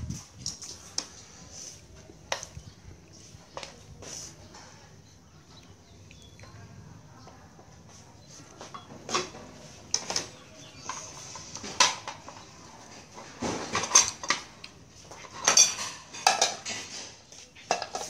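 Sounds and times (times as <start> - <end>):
spoons clinking on dishes: 13.8 - 18.0.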